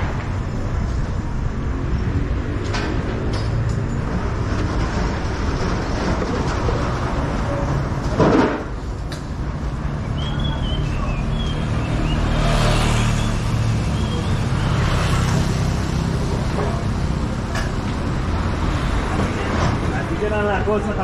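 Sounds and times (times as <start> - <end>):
traffic engines running: 0.0 - 21.0
motorcycle passing: 9.7 - 18.9.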